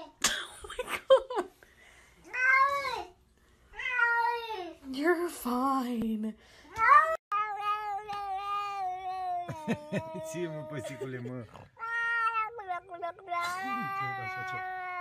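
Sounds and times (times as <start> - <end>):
cat meowing: 11.8 - 15.0.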